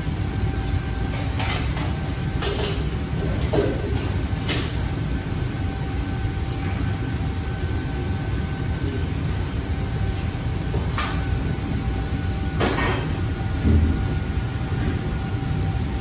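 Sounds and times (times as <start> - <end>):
low rumble of burners and hood: 0.0 - 16.0.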